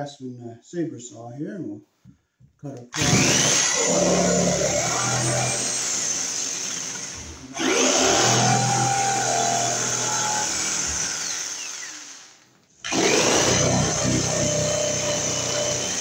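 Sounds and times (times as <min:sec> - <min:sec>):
saber saw motor whine: 0:07.6 - 0:12.3.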